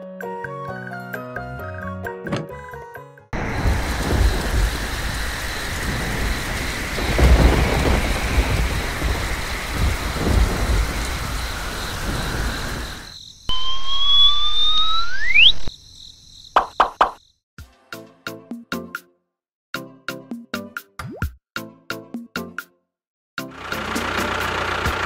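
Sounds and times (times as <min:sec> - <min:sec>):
thunder rolling: 0:03.4 - 0:13.2
heavy rain hiss: 0:03.4 - 0:13.6, 0:23.6 - 0:25.0
rising whistle-like glide: 0:12.1 - 0:15.7.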